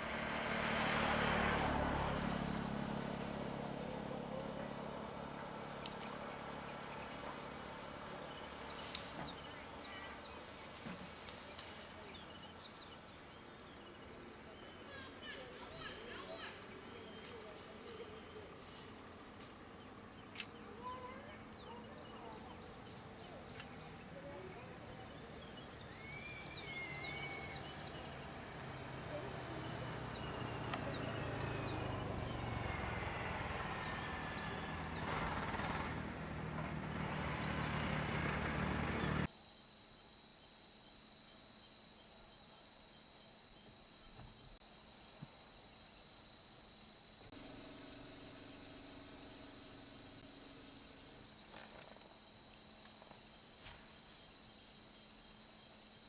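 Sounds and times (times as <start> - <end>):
insects trilling: 1.6 - 35.8, 39.2 - 56.0
bird chirps: 19.6 - 28.1
pulsing insect trill: 39.2 - 56.0.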